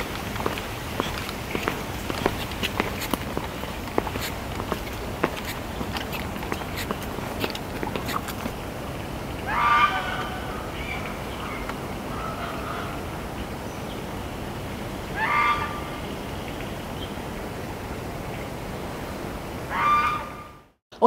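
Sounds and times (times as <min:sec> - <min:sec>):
footsteps on pavement: 0:00.0 - 0:08.6
loud animal call: 0:09.5 - 0:10.6, 0:15.2 - 0:15.9, 0:19.7 - 0:20.5.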